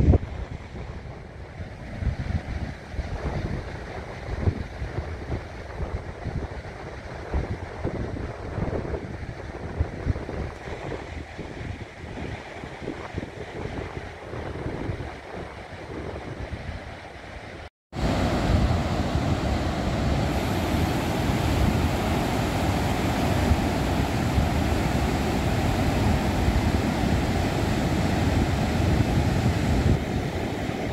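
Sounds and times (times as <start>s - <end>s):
wind buffeting microphone: 0.0s - 30.9s
surf breaking on beach: 18.0s - 30.9s.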